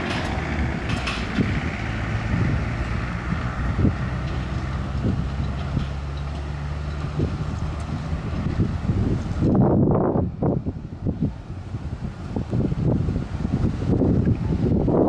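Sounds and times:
trolley clattering on rails: 0:00.0 - 0:08.6.

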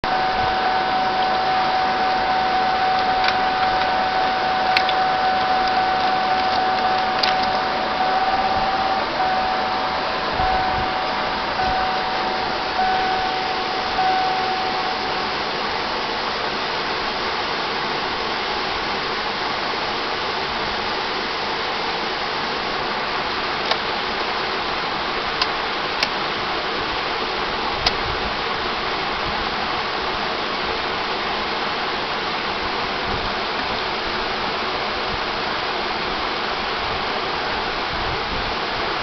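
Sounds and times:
high electronic tone beeping: 0:00.0 - 0:15.8
steady loud hiss: 0:00.0 - 0:39.0.

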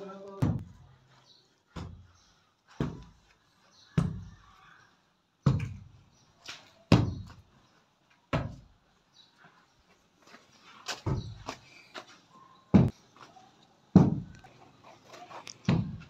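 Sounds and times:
hand tool pounding brick wall: 0:14.0 - 0:14.4, 0:15.7 - 0:16.0.

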